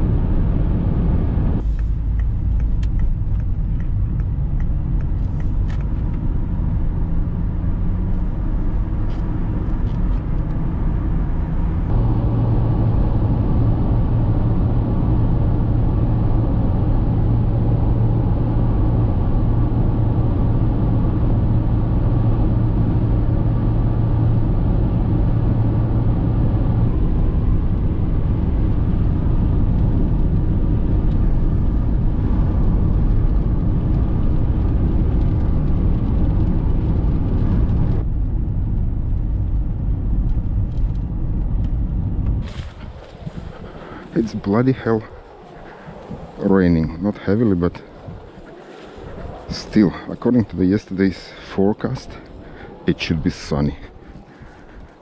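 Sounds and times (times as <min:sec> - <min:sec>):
car road and engine rumble: 0:00.0 - 0:55.0
light ticks: 0:01.8 - 0:06.2.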